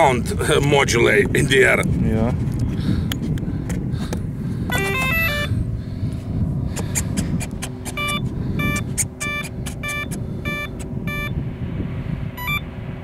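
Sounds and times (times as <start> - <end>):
steady low rumble: 0.0 - 13.0
short repeating beeps: 4.7 - 5.5, 7.8 - 11.4, 12.4 - 12.7
speed controller start-up beeps: 4.7 - 5.5, 7.8 - 11.4, 12.4 - 12.7.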